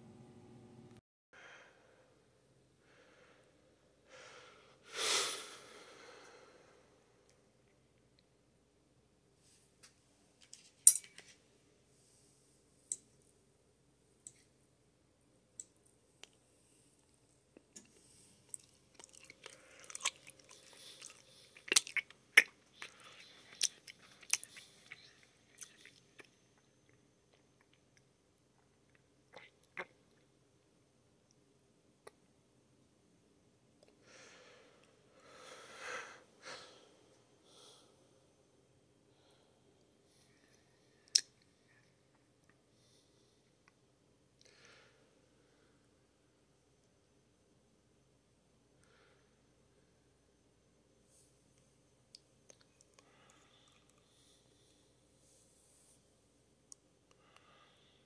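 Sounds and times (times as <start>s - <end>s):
steady hum: 0.0s - 1.0s
person breathing: 1.4s - 7.1s, 34.0s - 38.4s, 53.0s - 56.0s, 57.1s - 58.0s
person chewing crunchy food: 17.9s - 26.3s.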